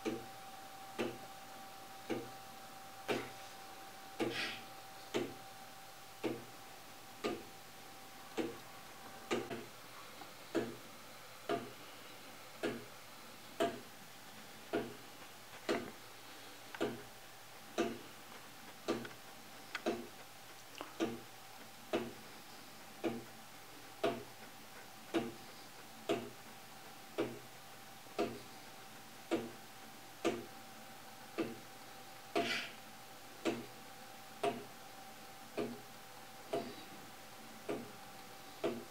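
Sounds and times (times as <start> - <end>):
wooden clock ticking: 0.0 - 1.4, 2.0 - 2.4, 3.0 - 3.4, 4.1 - 4.5, 5.1 - 5.5, 6.2 - 6.6, 7.2 - 7.6, 8.3 - 9.7, 10.5 - 10.8, 11.5 - 11.8, 12.6 - 12.9, 13.6 - 30.6, 31.3 - 32.7, 33.4 - 33.8, 34.4 - 34.8, 35.5 - 36.8, 37.6 - 38.9.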